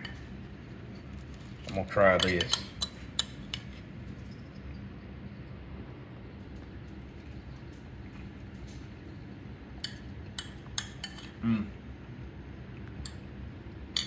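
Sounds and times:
low room hum: 0.0s - 14.0s
metal spoon clinking on bowl: 2.0s - 3.6s.

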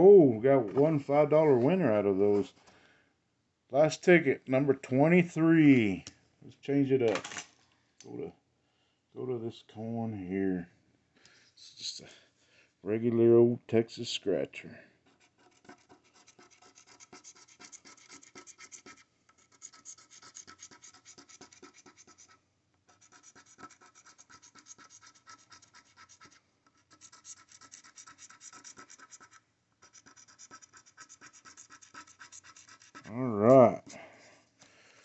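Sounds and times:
coin scratching lottery ticket: 15.3s - 33.2s.

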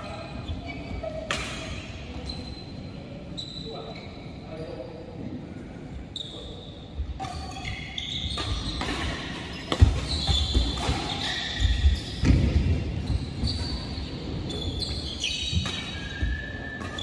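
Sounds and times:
shoes squeaking on court floor: 0.0s - 4.8s, 6.1s - 17.0s
racket hitting shuttlecock: 1.3s - 1.8s, 8.3s - 13.1s.

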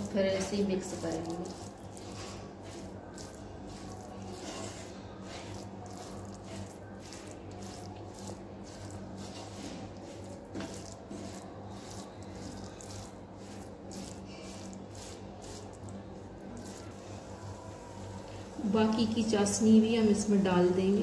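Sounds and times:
wooden spatula scraping a pan: 0.0s - 15.9s.

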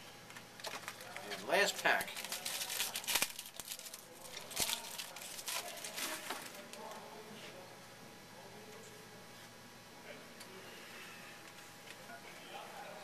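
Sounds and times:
cards rustling: 0.3s - 7.0s
wrapper tearing and crinkling: 0.6s - 6.9s.

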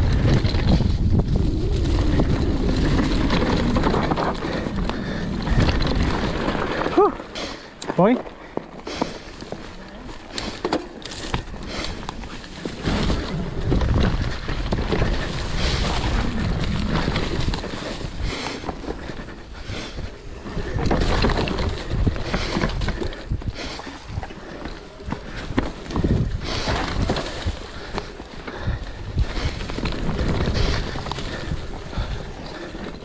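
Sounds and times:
low rumble: 0.0s - 7.0s
wind buffeting microphone: 0.0s - 7.2s, 11.2s - 33.0s
bike knocks and rattles: 20.0s - 33.0s.

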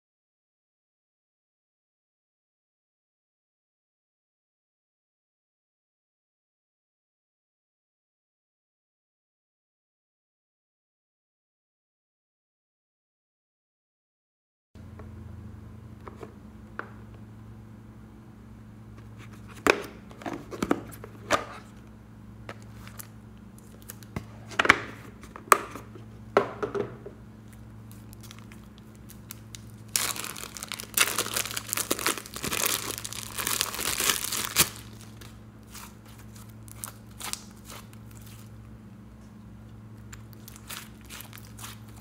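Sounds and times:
faint low hum: 14.8s - 42.0s
plastic bag crinkling: 27.8s - 38.6s, 40.1s - 42.0s.

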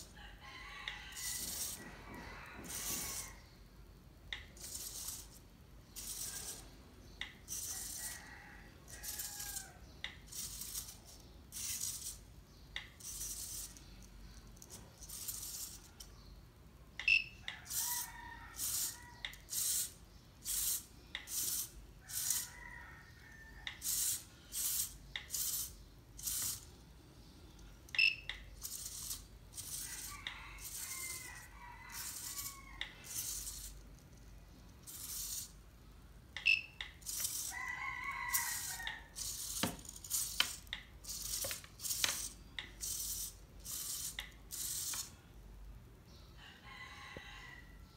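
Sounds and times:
servo motors whirring: 2.5s - 3.4s.

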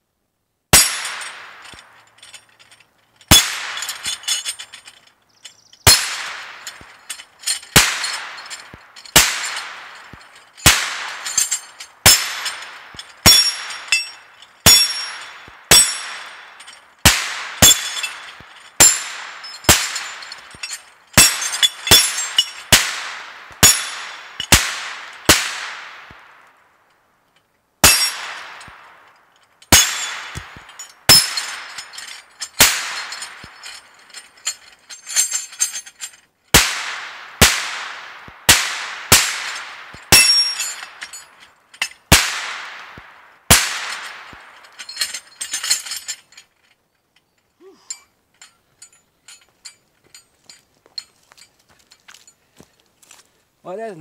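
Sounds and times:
bullets pinging steel plates: 0.7s - 52.3s
gunshots: 5.9s - 6.9s, 7.7s - 11.3s, 14.7s - 20.3s, 21.2s - 26.3s, 32.6s - 33.5s, 36.6s - 40.4s, 42.1s - 44.5s.

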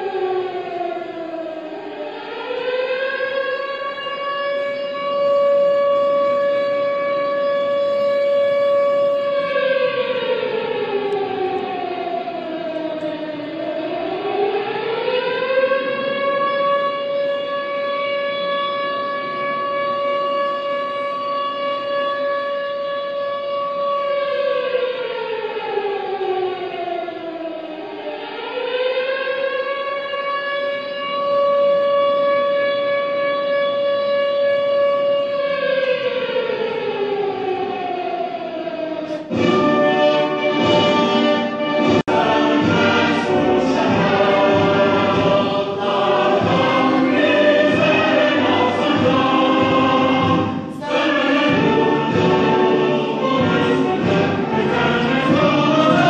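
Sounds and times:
siren wailing: 0.0s - 56.0s
orchestral music: 39.0s - 56.0s.

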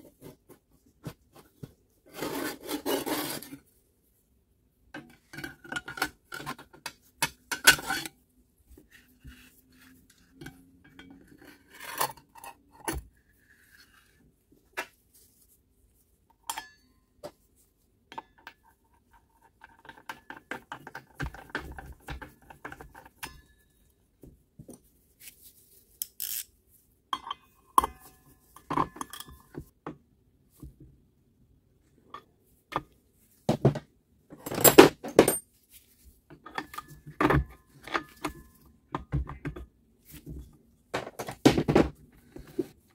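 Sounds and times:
metallic clinks and knocks: 34.4s - 35.5s.

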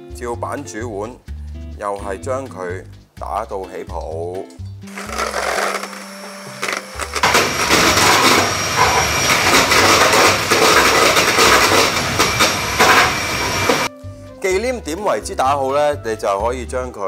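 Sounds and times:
electric hand mixer whipping cream: 4.9s - 13.9s.

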